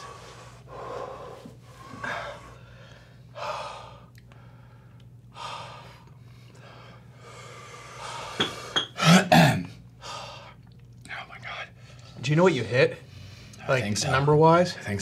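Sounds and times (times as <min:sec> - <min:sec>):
man breathing hard and gasping: 0:00.0 - 0:09.1, 0:10.0 - 0:10.6.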